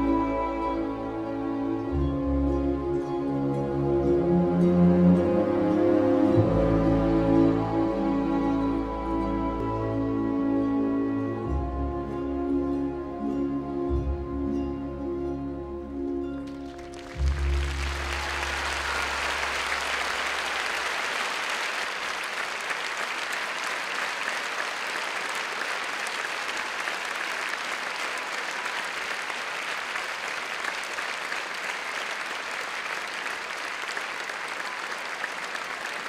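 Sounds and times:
deep music note: 0:11.5 - 0:20.4
audience applauding: 0:16.4 - 0:36.0.

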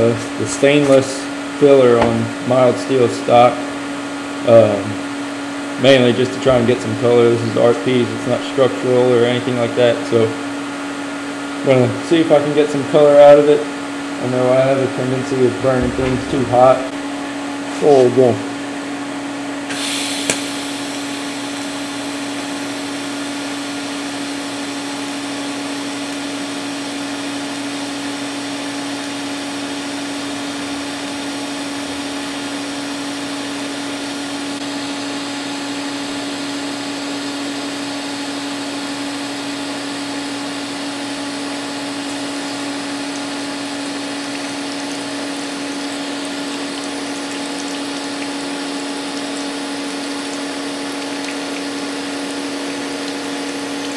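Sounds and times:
welder and cooler hum: 0:00.0 - 0:53.9
welding arc hiss: 0:19.7 - 0:21.5.

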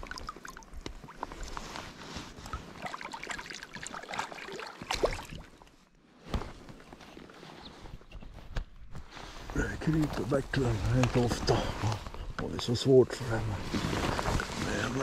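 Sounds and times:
water trickling: 0:00.0 - 0:01.4, 0:02.4 - 0:05.7
river water splashing: 0:02.4 - 0:05.8.

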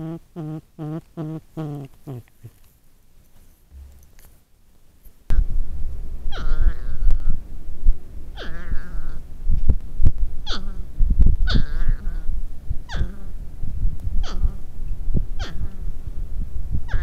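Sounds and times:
low rumbling: 0:03.7 - 0:04.2, 0:05.3 - 0:17.0
porcupines wailing: 0:06.3 - 0:07.4, 0:08.4 - 0:09.2, 0:11.5 - 0:12.3.

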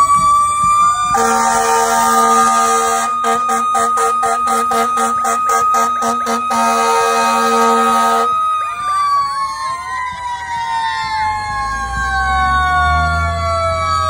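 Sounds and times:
siren winding down: 0:00.0 - 0:14.0
wavering sirens: 0:00.0 - 0:14.0
horn blast: 0:01.1 - 0:08.4.

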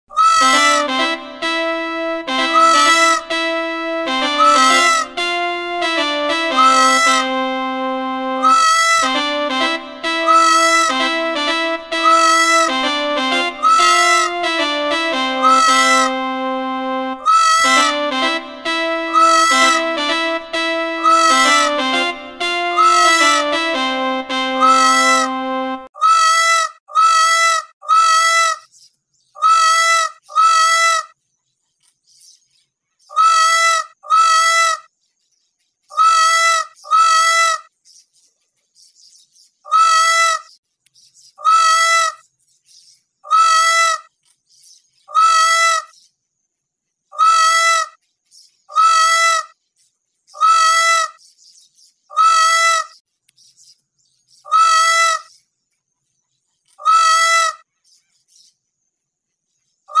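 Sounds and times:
peacock wailing call: 0:00.1 - 0:00.6, 0:52.2 - 0:52.9, 0:54.5 - 0:55.2, 0:56.8 - 0:57.6.

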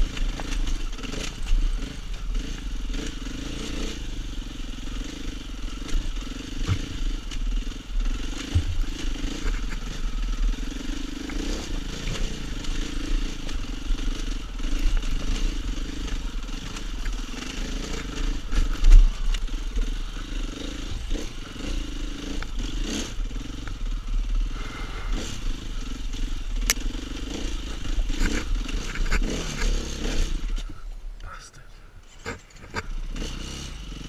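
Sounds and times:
motorcycle engine running: 0:00.0 - 0:30.9, 0:32.1 - 0:34.0
heavy thump: 0:08.5 - 0:08.9.

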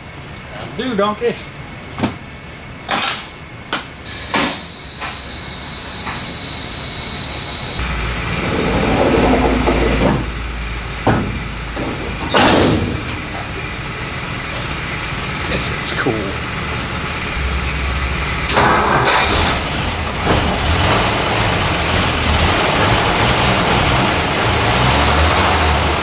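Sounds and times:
air hissing: 0:04.1 - 0:07.9
low hum: 0:04.1 - 0:21.0.

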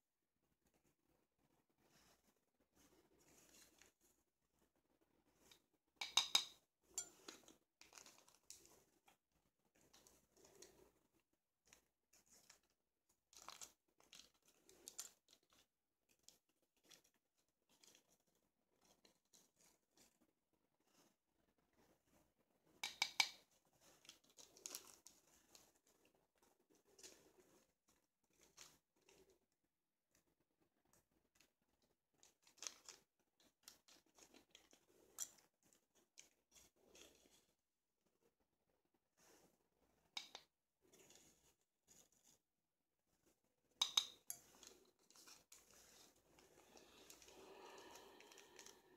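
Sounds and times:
spoon stirring in plastic bowl: 0:02.0 - 0:04.0, 0:05.3 - 0:20.2, 0:22.8 - 0:29.3, 0:32.2 - 0:37.6, 0:40.2 - 0:42.4, 0:43.8 - 0:48.9.

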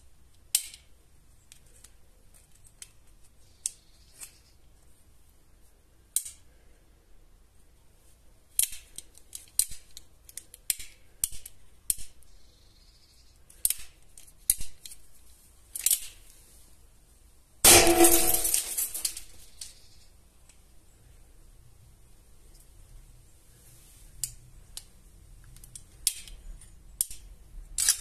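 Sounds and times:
gunshot echoing indoors: 0:17.7 - 0:18.8.

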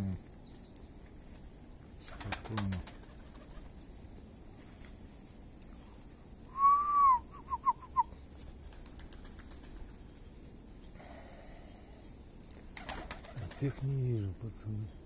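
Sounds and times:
person whistling: 0:06.5 - 0:08.1.

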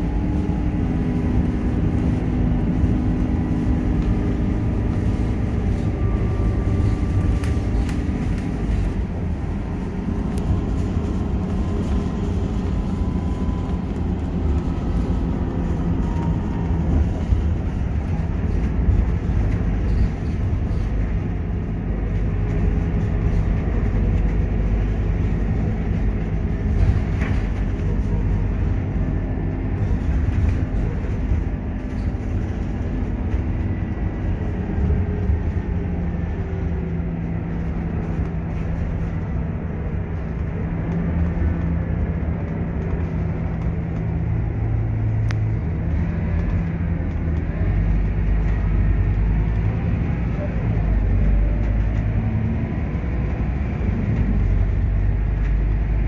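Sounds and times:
bus diesel engine running: 0:00.0 - 0:56.0
road noise: 0:00.0 - 0:56.0.

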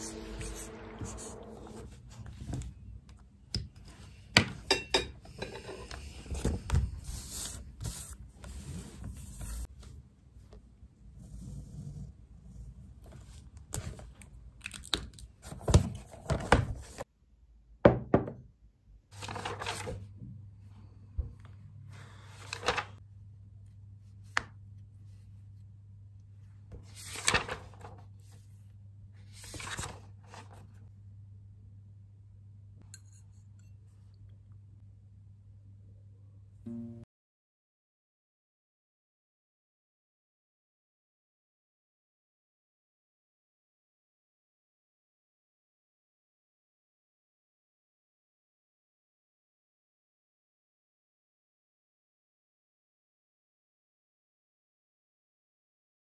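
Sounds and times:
low steady hum: 0:00.0 - 0:04.0, 0:30.9 - 0:37.1
paper rustling: 0:19.2 - 0:20.1, 0:22.1 - 0:23.0, 0:26.8 - 0:28.4, 0:29.3 - 0:30.7.

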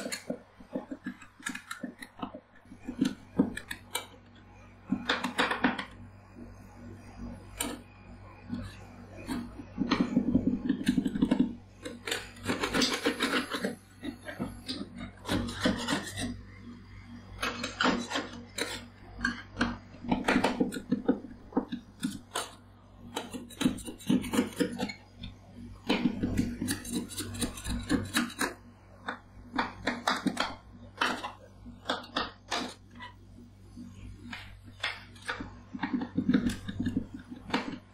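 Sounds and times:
metal spatulas chopping and scraping: 0:10.8 - 0:13.7, 0:14.4 - 0:16.4, 0:22.0 - 0:25.0, 0:25.9 - 0:28.6.

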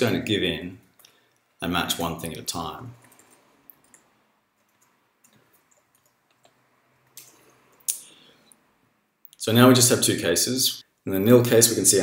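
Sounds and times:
faint keyboard clicks: 0:03.0 - 0:08.0.

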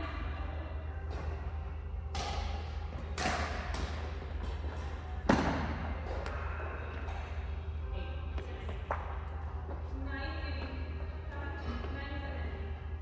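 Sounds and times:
steady low hum: 0:00.0 - 0:13.0
rackets hitting shuttlecock: 0:02.1 - 0:06.5.

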